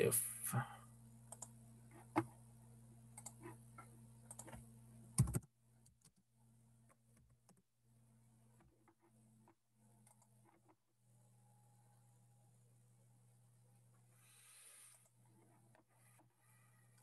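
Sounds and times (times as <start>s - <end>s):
low electrical hum: 0.0s - 17.0s
keyboard and mouse clicks: 1.3s - 2.3s, 3.2s - 4.6s, 5.2s - 6.2s, 8.8s - 10.7s.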